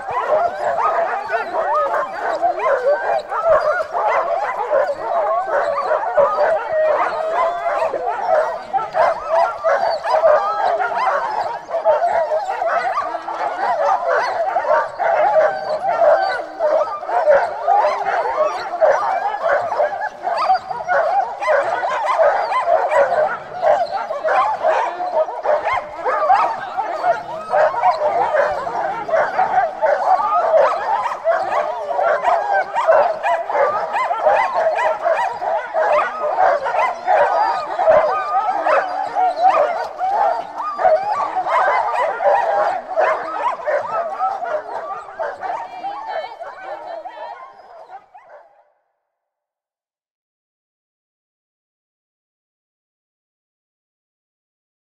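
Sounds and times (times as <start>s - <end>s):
sled dogs yelping and whining: 0.0s - 48.5s.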